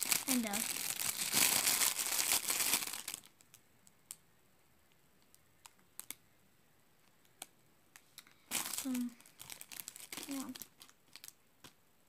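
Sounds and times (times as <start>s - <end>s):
plastic packaging crinkling: 0.0s - 3.6s, 8.4s - 11.4s
faint clicks of toy handled: 7.0s - 9.0s.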